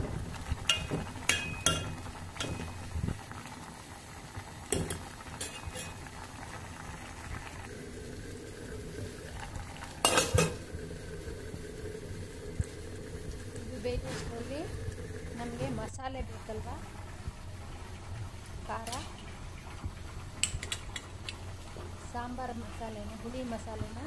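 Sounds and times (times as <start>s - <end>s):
steel lid clattering on pot: 0.6s - 2.9s, 4.8s - 6.1s, 10.0s - 10.6s
spoon clinking in metal pot: 0.7s - 2.8s, 4.8s - 6.0s.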